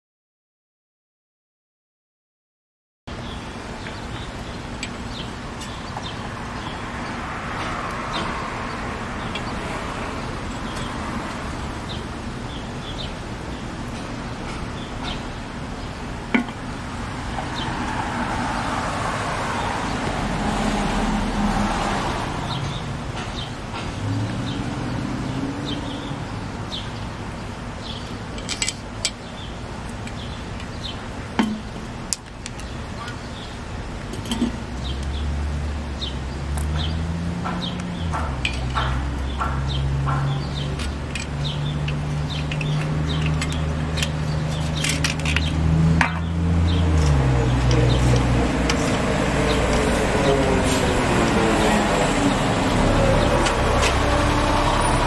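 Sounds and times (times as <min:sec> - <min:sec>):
road traffic passing: 0:03.1 - 0:55.0
tools clicking and tapping: 0:16.3 - 0:16.6, 0:28.3 - 0:29.2, 0:29.8 - 0:30.8, 0:34.1 - 0:35.1, 0:36.5 - 0:50.3.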